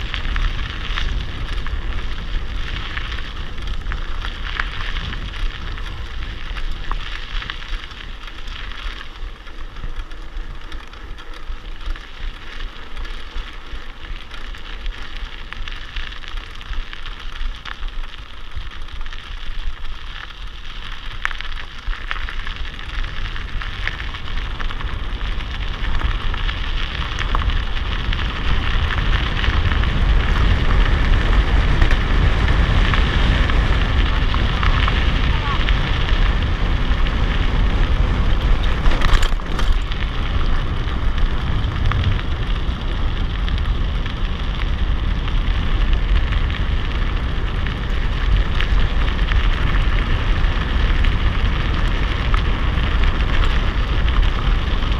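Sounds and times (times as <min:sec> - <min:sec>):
bike rattles and clicks: 0:00.0 - 0:54.9
bike tyres crackling on gravel: 0:00.0 - 0:54.9
low rumble: 0:21.8 - 0:54.9.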